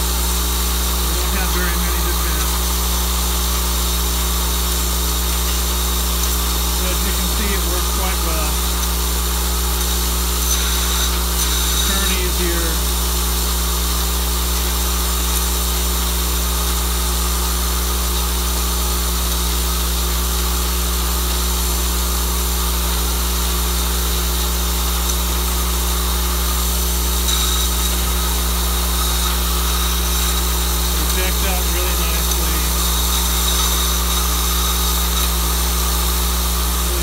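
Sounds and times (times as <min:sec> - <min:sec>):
low electromagnetic hum: 0:00.0 - 0:13.1, 0:24.8 - 0:37.0.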